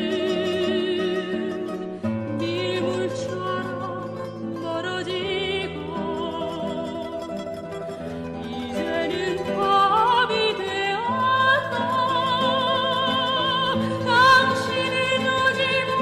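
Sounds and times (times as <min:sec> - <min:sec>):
soprano singing with vibrato: 0:00.0 - 0:16.0.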